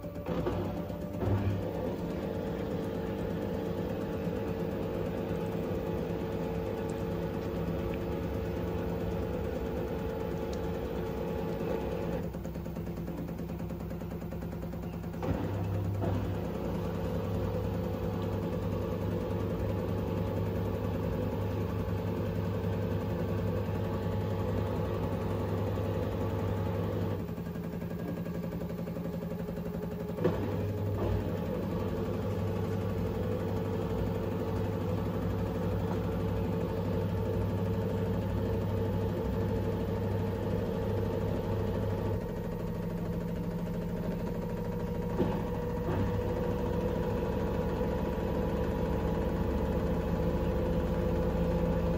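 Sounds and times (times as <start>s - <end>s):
washing machine spinning: 0.0s - 51.9s
washing machine knock: 28.0s - 51.9s.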